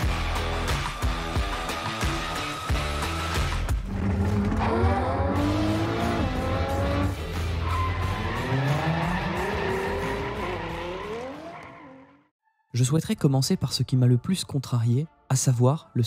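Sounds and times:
car engine accelerating hard: 0:03.9 - 0:12.0.

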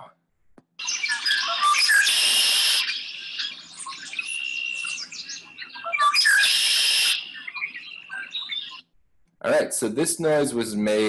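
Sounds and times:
bird chirps and whistled notes: 0:00.8 - 0:08.9
blackbird song with buzzy trill: 0:00.8 - 0:08.9.

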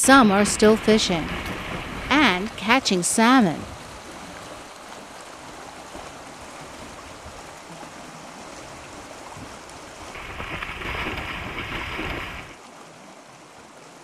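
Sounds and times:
shallow water washing: 0:00.0 - 0:13.9
bear splashing through water: 0:05.4 - 0:12.6.

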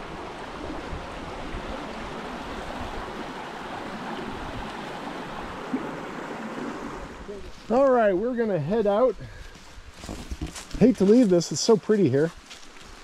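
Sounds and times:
creek water over rocks: 0:00.0 - 0:09.7.

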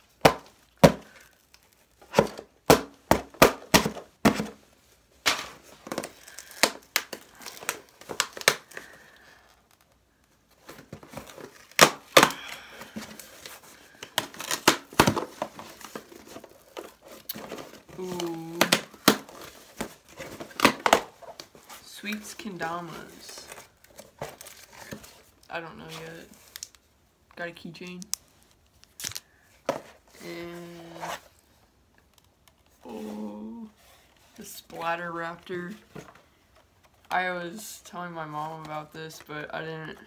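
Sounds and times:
cardboard packaging crinkling: 0:03.8 - 0:26.8
packaging tearing: 0:28.8 - 0:29.3.

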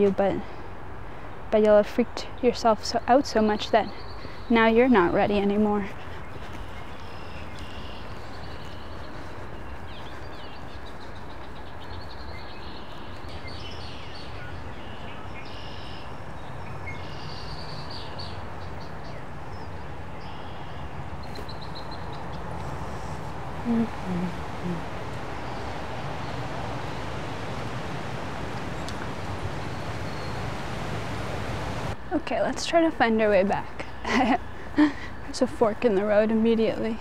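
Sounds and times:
small birds chirping: 0:02.2 - 0:32.0
steady low rumble: 0:21.0 - 0:32.0.

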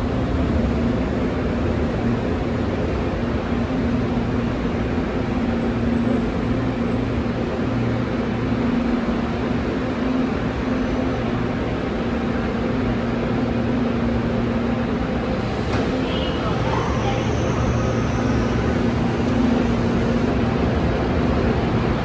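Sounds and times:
electric train braking to a stop: 0:15.7 - 0:20.0.

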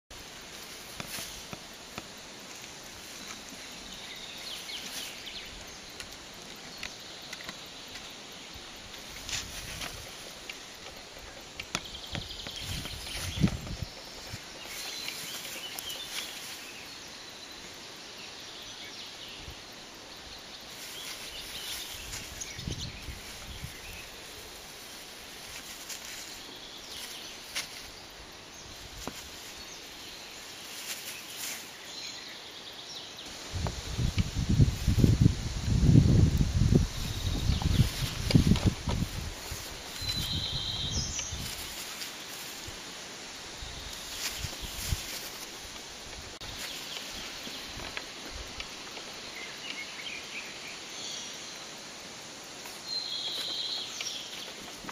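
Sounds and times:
rustling in long grass: 0:00.1 - 0:54.9
steady background hiss: 0:00.1 - 0:54.9.

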